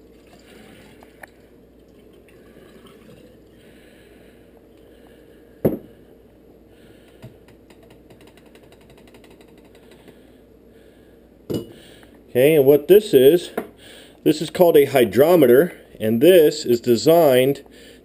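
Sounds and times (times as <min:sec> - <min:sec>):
liquid trickling: 0:00.0 - 0:03.6.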